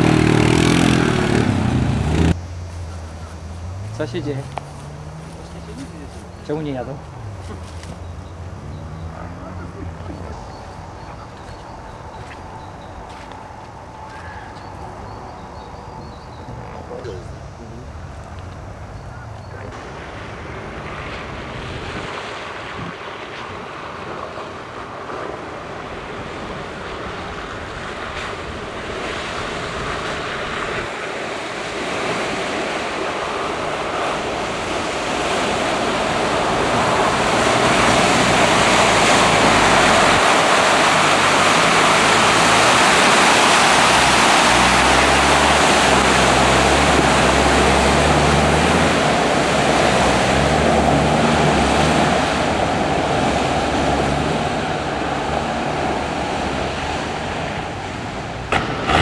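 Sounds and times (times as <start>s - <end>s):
off-road vehicle engine working hard: 0.0s - 23.0s, 25.0s - 59.0s
splashing and sprayed mud: 19.7s - 59.0s.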